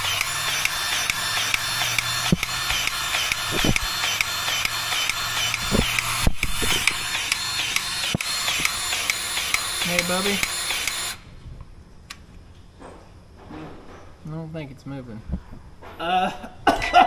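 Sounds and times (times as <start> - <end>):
low motor hum: 0.0 - 11.1
grease gun pump clicking: 0.1 - 11.2.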